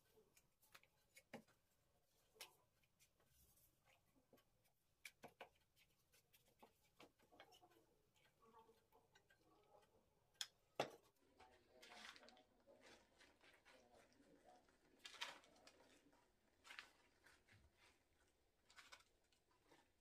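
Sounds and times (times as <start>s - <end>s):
dough sheets clicking and tapping: 0.1s - 1.7s, 4.2s - 11.0s.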